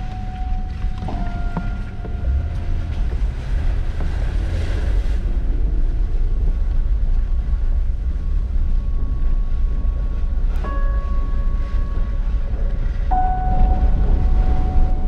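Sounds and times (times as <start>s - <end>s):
vehicle driving on gravel road: 0.0s - 15.0s.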